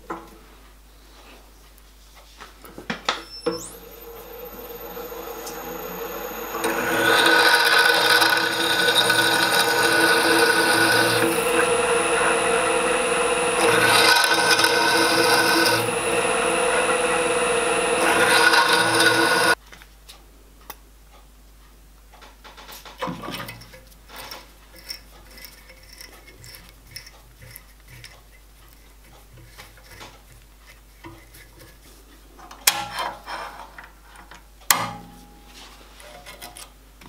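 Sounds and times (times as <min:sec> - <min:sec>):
drill bit cutting metal: 0:03.2 - 0:19.6
drill motor whining: 0:03.2 - 0:19.6.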